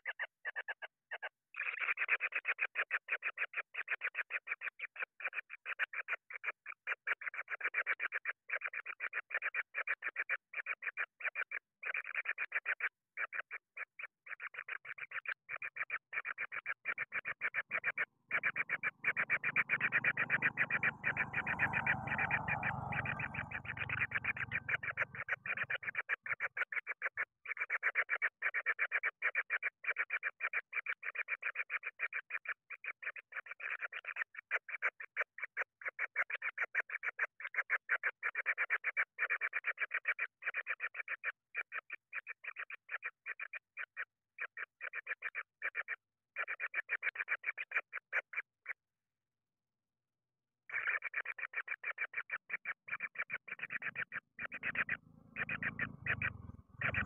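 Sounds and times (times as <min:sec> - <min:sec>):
pulsed animal trill: 0:17.7 - 0:26.0, 0:53.5 - 0:57.0.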